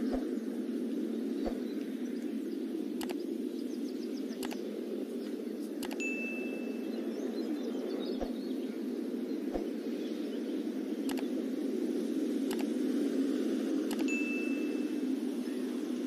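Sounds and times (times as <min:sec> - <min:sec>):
muffled background noise: 0:00.0 - 0:14.1
short clicks: 0:03.0 - 0:03.2, 0:04.4 - 0:04.6, 0:05.8 - 0:06.0, 0:11.1 - 0:11.3, 0:12.5 - 0:12.7, 0:13.9 - 0:14.1.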